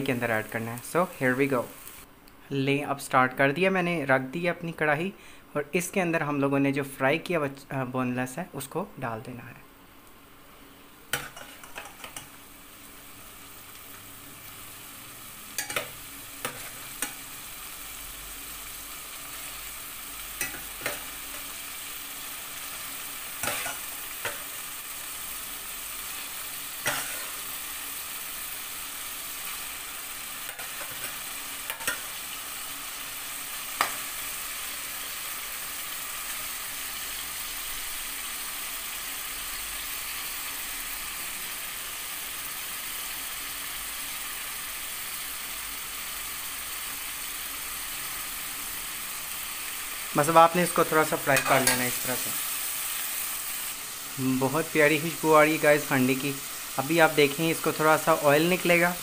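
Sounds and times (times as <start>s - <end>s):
chicken sizzling in a pan: 0.0s - 2.1s, 10.4s - 59.0s
metal spoon clinking on pan: 15.6s - 17.2s, 20.4s - 21.0s, 31.7s - 32.1s.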